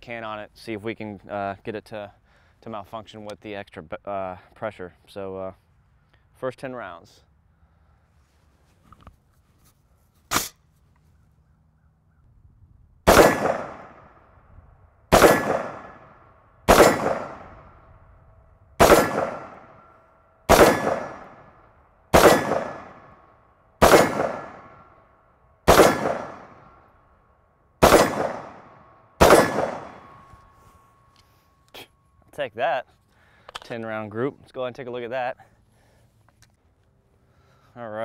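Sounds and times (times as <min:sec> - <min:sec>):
rifle shots with ringing echo: 0:13.0 - 0:14.4, 0:15.1 - 0:18.0, 0:18.8 - 0:27.0, 0:27.8 - 0:30.5.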